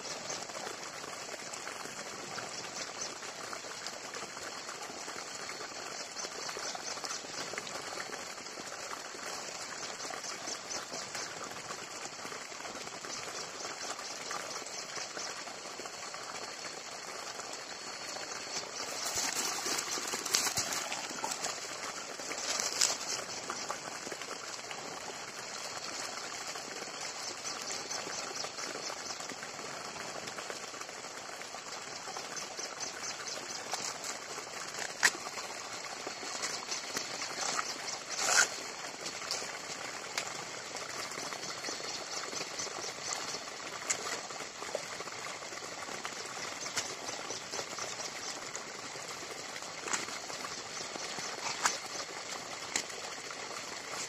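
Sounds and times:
high-pitched insect chorus: 0:14.6 - 0:24.8, 0:32.0 - 0:44.2.

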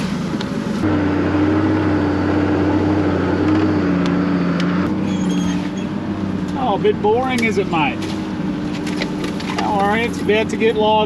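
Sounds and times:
road noise: 0:00.0 - 0:11.0
vehicle engine drone: 0:00.0 - 0:11.0.

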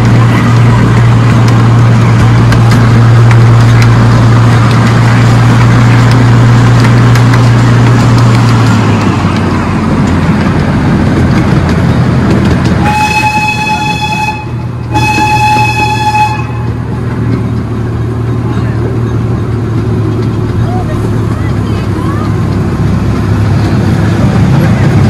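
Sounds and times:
miniature train engine hum: 0:00.0 - 0:25.0
train horn toots: 0:12.8 - 0:16.8.

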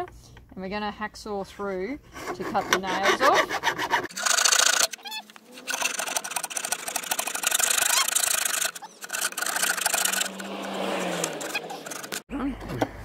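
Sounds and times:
hacksaw sawing through nails: 0:02.1 - 0:05.0, 0:05.6 - 0:12.2.

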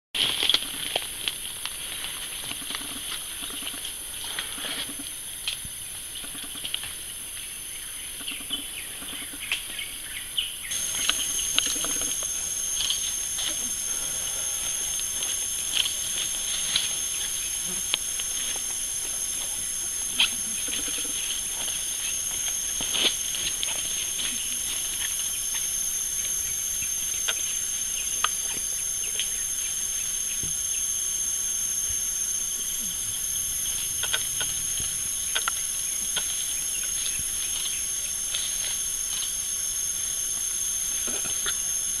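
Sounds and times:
insects droning: 0:00.2 - 0:42.0.

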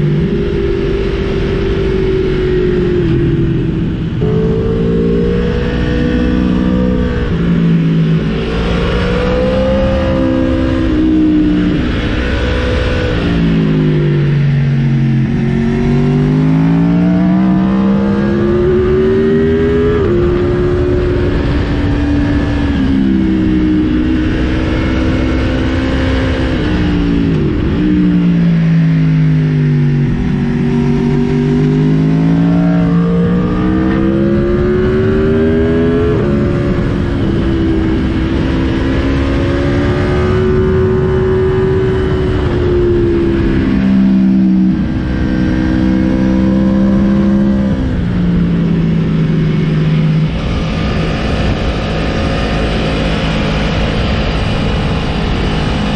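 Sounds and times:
motorcycle engine revving: 0:00.0 - 0:55.9
wind rush: 0:29.6 - 0:55.9.

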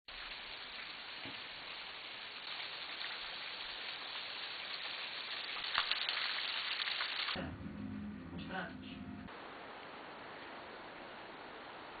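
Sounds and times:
low steady hum: 0:07.4 - 0:11.6.

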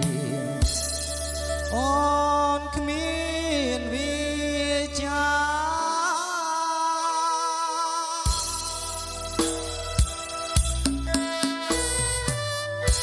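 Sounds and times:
music backing track: 0:00.0 - 0:06.3, 0:08.1 - 0:13.0
man singing with vibrato: 0:00.0 - 0:09.3.

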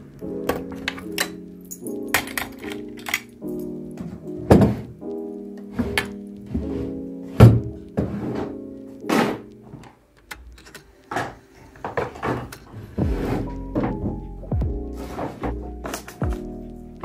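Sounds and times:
soft background music: 0:00.0 - 0:17.0
objects knocking on a desk: 0:04.0 - 0:04.9.

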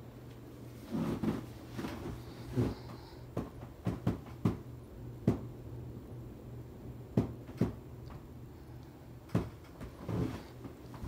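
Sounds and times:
ceiling fan humming: 0:00.0 - 0:11.0
sharp knocks: 0:07.2 - 0:07.8.

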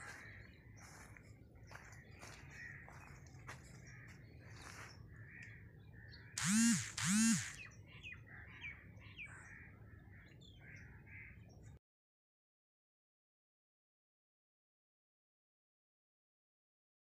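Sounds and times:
loud rising and falling bird calls: 0:00.0 - 0:11.5
small birds chirping: 0:00.0 - 0:11.8.

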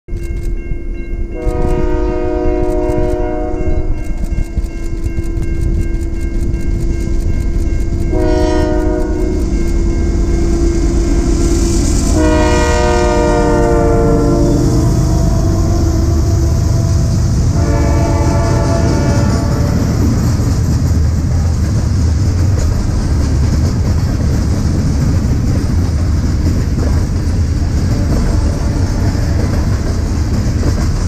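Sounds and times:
locomotive engines rumbling: 0:00.2 - 0:31.0
train air horn: 0:01.3 - 0:04.2, 0:08.0 - 0:20.4.

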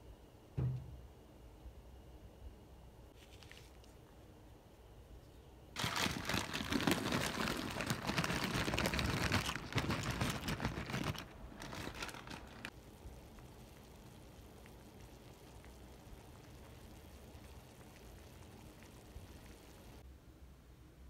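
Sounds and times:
plastic bag crinkling: 0:05.8 - 0:12.8
pasta pouring into water: 0:05.8 - 0:20.0.

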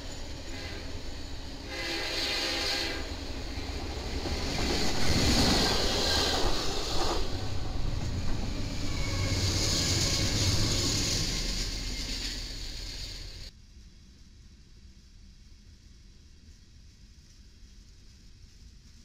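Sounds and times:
train wheels rushing on rail: 0:00.0 - 0:13.5
low engine rumble: 0:02.9 - 0:13.5.

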